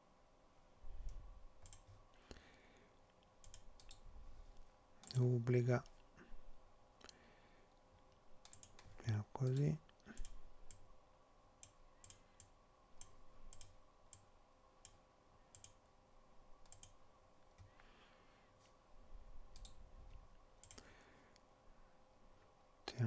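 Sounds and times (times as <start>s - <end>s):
faint steady hum: 0.0s - 23.0s
computer mouse clicks: 1.0s - 2.0s, 3.2s - 4.0s, 8.4s - 10.9s, 11.6s - 15.8s, 16.6s - 17.8s, 19.5s - 19.8s, 20.6s - 21.4s.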